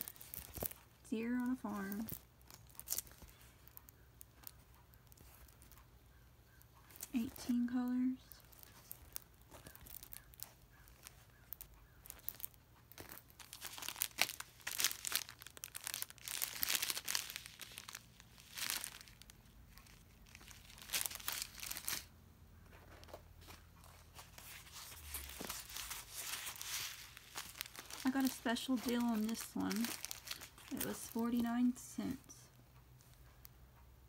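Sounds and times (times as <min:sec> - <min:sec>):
plastic packaging crinkling: 0:00.0 - 0:05.8, 0:06.5 - 0:22.1, 0:22.8 - 0:32.4.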